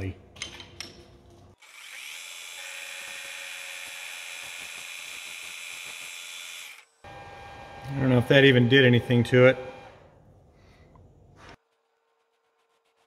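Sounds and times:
lathe spindle whining: 0:06.4 - 0:10.1.

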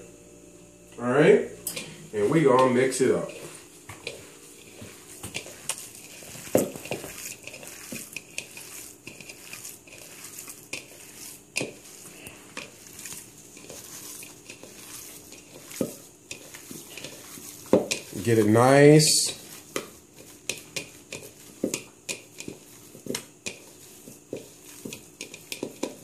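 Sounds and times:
hands squeezing raw ground meat: 0:03.2 - 0:26.0.

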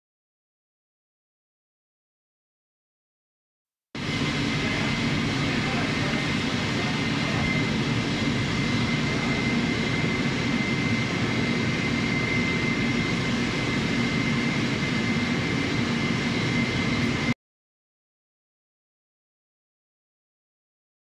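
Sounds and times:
workshop machinery noise: 0:04.0 - 0:17.3
faint high whine: 0:04.0 - 0:17.4.

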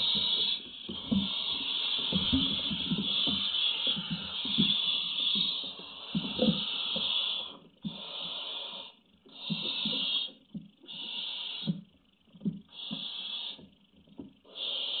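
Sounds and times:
owl chicks hissing calls: 0:00.0 - 0:11.9, 0:12.7 - 0:13.8, 0:14.5 - 0:15.0
chicks shuffling soft thumps: 0:00.0 - 0:14.2.

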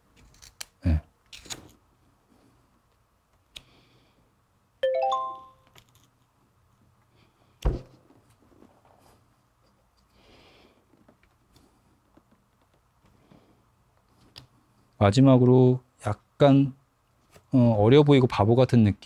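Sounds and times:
rising chime sound effect: 0:04.8 - 0:05.6.

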